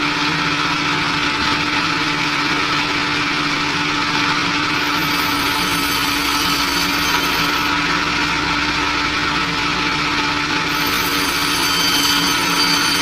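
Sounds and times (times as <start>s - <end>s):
thin high whine: 4.5s - 13.0s
band saw cutting bone: 4.8s - 7.8s, 10.6s - 13.0s.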